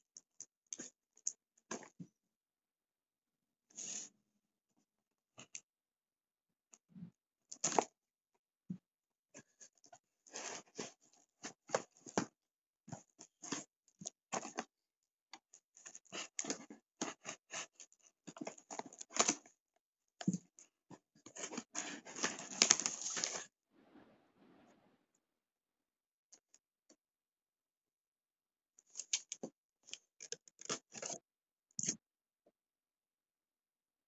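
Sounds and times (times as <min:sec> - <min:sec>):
packing tape and cardboard tearing: 0:22.1 - 0:23.4.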